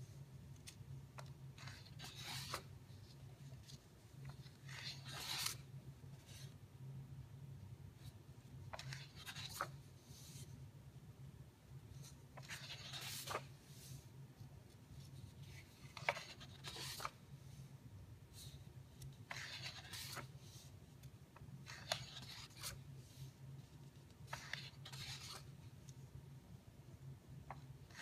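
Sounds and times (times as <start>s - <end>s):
book pages turning: 0.5s - 6.6s, 8.7s - 10.5s, 12.0s - 14.0s, 14.7s - 17.2s, 18.4s - 26.0s.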